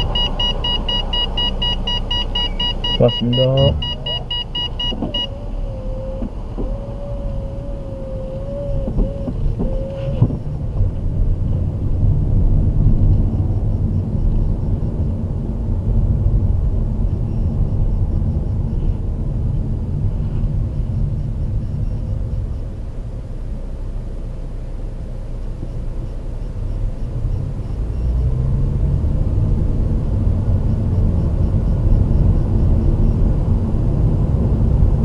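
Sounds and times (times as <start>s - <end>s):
electronic beeps: 0.0s - 5.4s
engine and road noise rumble: 0.0s - 35.0s.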